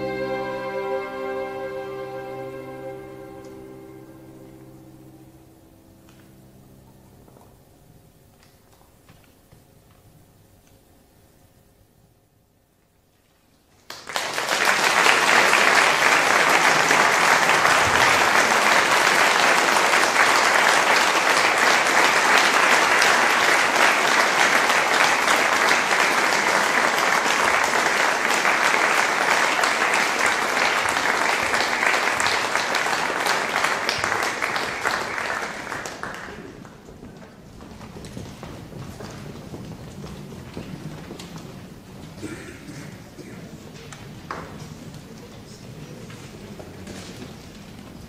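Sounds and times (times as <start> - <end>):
audience applauding: 13.9 - 46.4.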